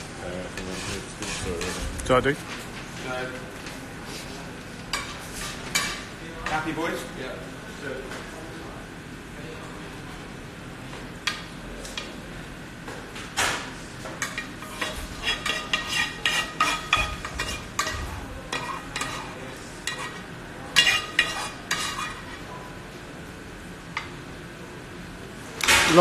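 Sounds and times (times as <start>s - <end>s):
metal spoon scraping a frying pan: 0.6s - 1.8s, 14.2s - 20.2s, 20.8s - 22.5s.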